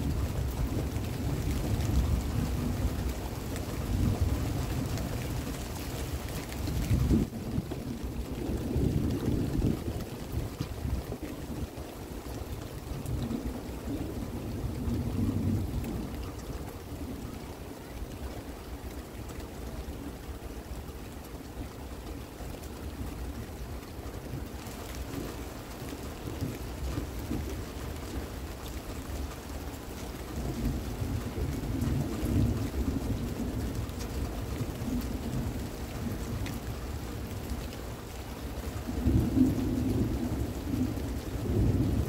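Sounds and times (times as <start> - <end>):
steady rain: 0.0 - 42.0
distant thunder rumbling: 6.3 - 11.8, 12.8 - 17.5, 30.2 - 42.0.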